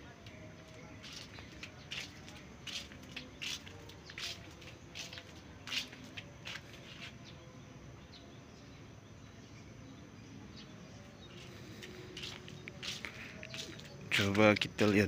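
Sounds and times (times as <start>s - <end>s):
faint outdoor background noise: 0.0s - 15.0s
footsteps crunching on gravel: 0.3s - 7.3s, 11.2s - 15.0s.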